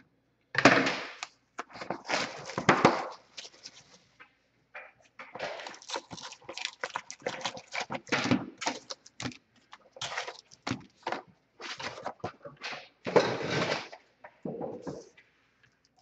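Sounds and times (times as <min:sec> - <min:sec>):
cardboard box and foil packs rustling: 0:01.6 - 0:04.1, 0:05.4 - 0:13.9.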